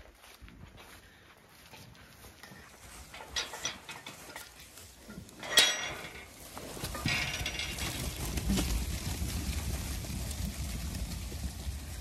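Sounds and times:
sheep flock rushing: 0:02.4 - 0:12.0
metal gate clanking open: 0:03.1 - 0:04.6, 0:05.4 - 0:08.0.

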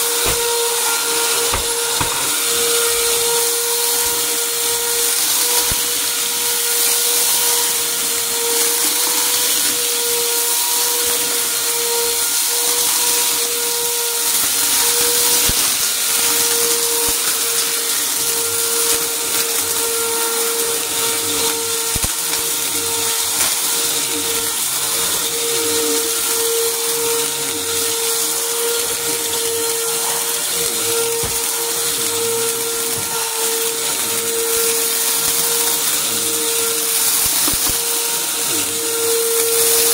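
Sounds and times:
debris crunching in vacuum: 0:00.0 - 0:04.9, 0:20.7 - 0:39.9
vacuum cleaner running on carpet: 0:00.0 - 0:39.9.

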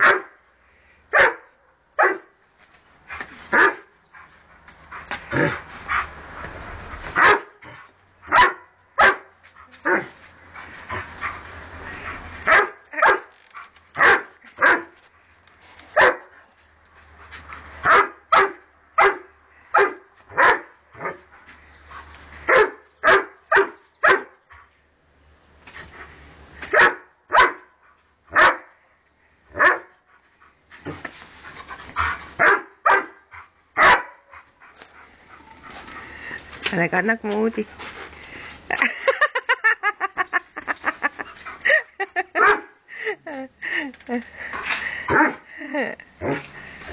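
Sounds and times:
dog barking: 0:00.0 - 0:00.4, 0:01.1 - 0:02.3, 0:03.5 - 0:03.9, 0:07.2 - 0:07.6, 0:08.3 - 0:09.3, 0:12.5 - 0:13.3, 0:14.0 - 0:14.9, 0:16.0 - 0:16.3, 0:17.8 - 0:21.2, 0:22.5 - 0:24.3, 0:26.7 - 0:27.7, 0:28.3 - 0:28.7, 0:29.6 - 0:29.9, 0:32.4 - 0:33.2, 0:33.8 - 0:34.2, 0:42.4 - 0:42.7, 0:45.1 - 0:45.4.

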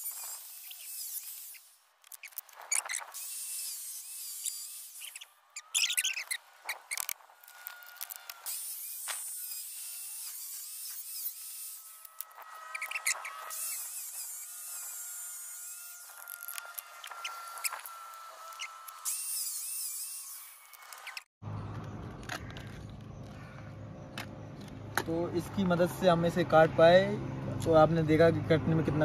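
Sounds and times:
angle grinder cutting plastic: 0:00.0 - 0:21.3.

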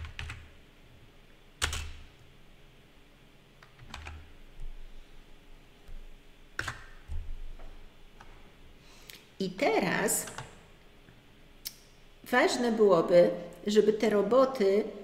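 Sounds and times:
computer keyboard keystrokes: 0:00.0 - 0:00.5, 0:01.6 - 0:02.0, 0:03.6 - 0:04.2, 0:06.6 - 0:07.2, 0:10.2 - 0:10.6.

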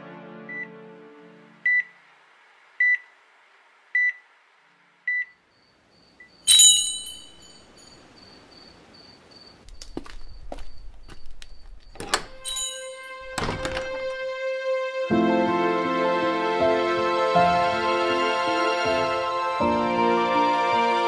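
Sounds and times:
bright ringing hit: 0:06.5 - 0:07.6.

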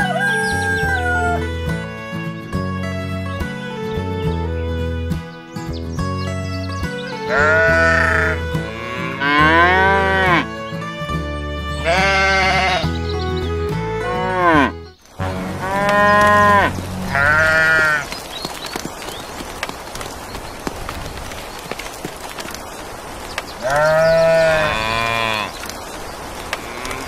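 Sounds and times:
soft background music: 0:00.0 - 0:18.0
sheep bleating: 0:07.2 - 0:10.6, 0:11.8 - 0:13.0, 0:14.0 - 0:18.1, 0:23.6 - 0:25.6
steady rain-like hiss: 0:15.0 - 0:27.0.

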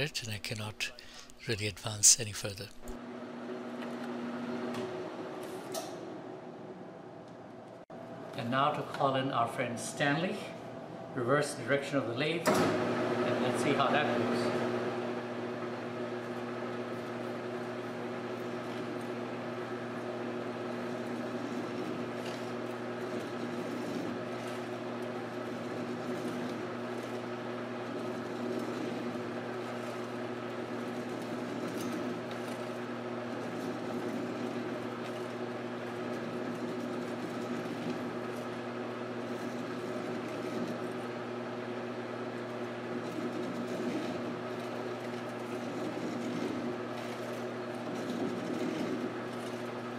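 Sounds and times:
lathe humming: 0:12.7 - 0:49.9
hacksaw cutting spinning steel: 0:20.7 - 0:41.0, 0:42.7 - 0:49.9.

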